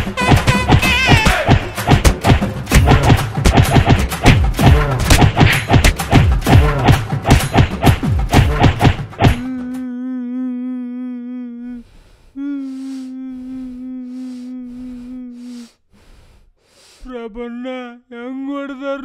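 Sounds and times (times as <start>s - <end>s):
hands slapping a back: 0.0s - 9.8s
man humming: 9.4s - 15.8s.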